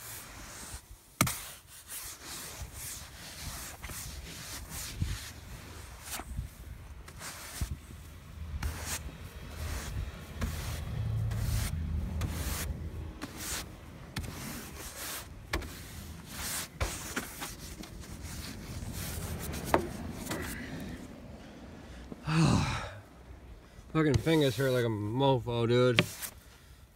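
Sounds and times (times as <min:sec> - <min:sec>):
snow swept off vehicle: 0:00.0 - 0:20.8, 0:24.0 - 0:24.9.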